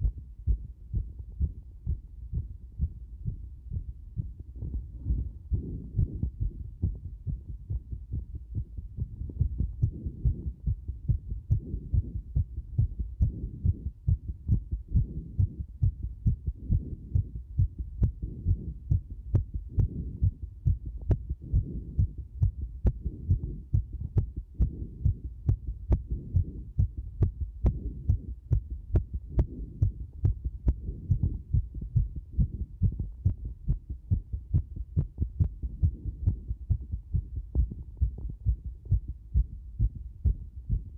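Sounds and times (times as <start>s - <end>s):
heartbeat thudding: 0.0s - 40.9s.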